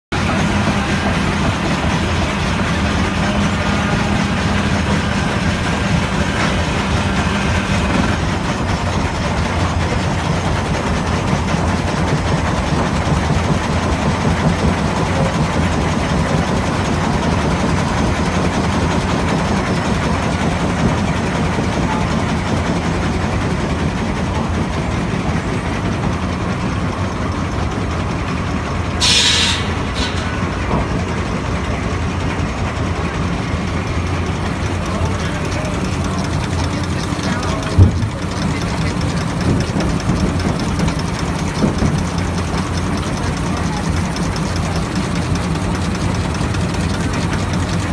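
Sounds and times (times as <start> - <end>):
steam engine running: 0.1 - 47.9
steam hiss: 29.0 - 30.5.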